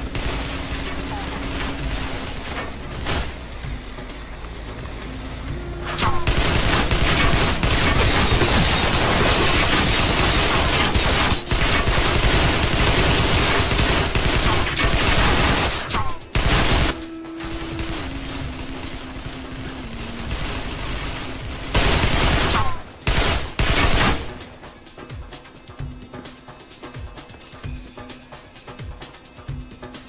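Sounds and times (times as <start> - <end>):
guns firing rapid volleys: 0.0 - 3.4, 6.0 - 24.4
background music: 0.0 - 30.0.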